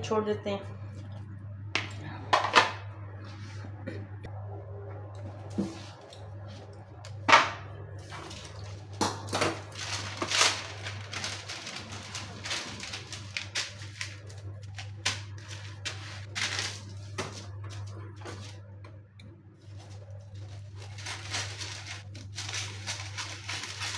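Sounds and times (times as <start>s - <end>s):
steady low hum: 0.0s - 23.9s
baking paper crinkling: 7.9s - 18.8s, 19.6s - 23.9s.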